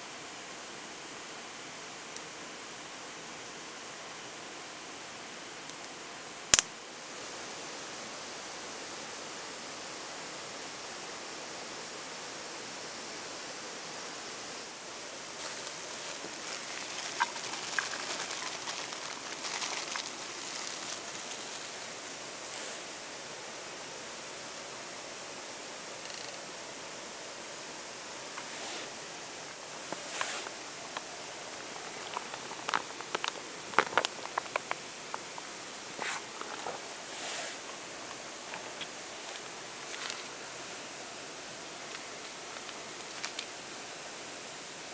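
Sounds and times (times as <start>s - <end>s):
river rushing: 14.5s - 23.4s
hissing sprinkles: 14.7s - 23.0s, 28.3s - 43.6s
salt pattering on metal pan: 15.3s - 21.8s
plastic bag crinkling: 15.4s - 21.9s, 31.5s - 35.2s.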